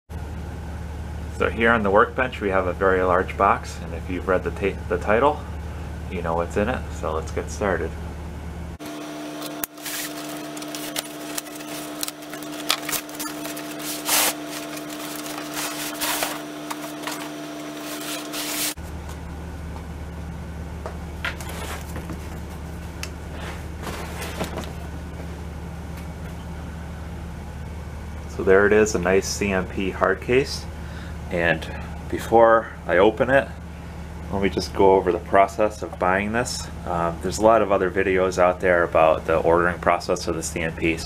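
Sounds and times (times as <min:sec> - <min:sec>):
low room hum: 0:00.1 - 0:41.0
cardboard box rustling and scraping: 0:09.8 - 0:18.8, 0:21.4 - 0:22.5, 0:23.3 - 0:24.9.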